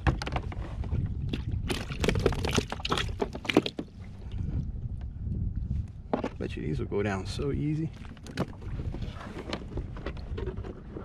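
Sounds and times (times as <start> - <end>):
water splashing around a kayak: 0.0 - 5.0, 7.7 - 11.0
steady low rumble: 3.8 - 9.1.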